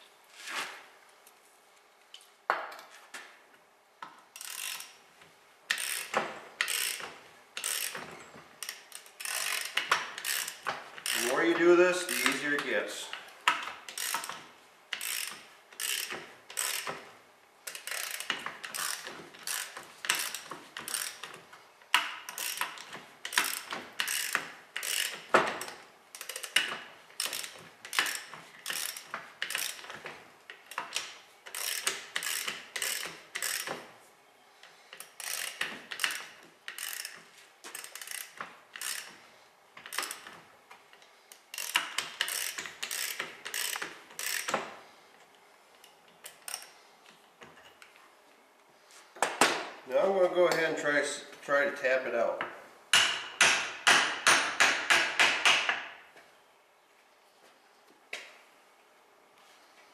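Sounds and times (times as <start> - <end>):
ratchet wrench clicking: 4.3 - 5.0, 5.7 - 12.7, 13.4 - 33.8, 34.9 - 39.2, 39.8 - 40.4, 41.3 - 44.6, 46.2 - 46.8.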